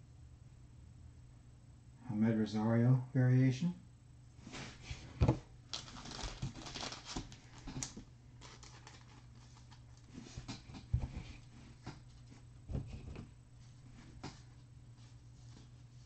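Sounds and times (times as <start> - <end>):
paper rustling and crinkling: 4.5 - 13.1.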